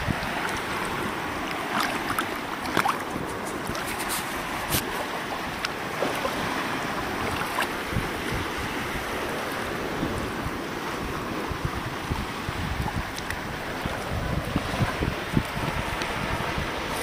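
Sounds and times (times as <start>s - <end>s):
sea washing over rocks: 0.0s - 17.0s
wind buffeting microphone: 0.0s - 17.0s.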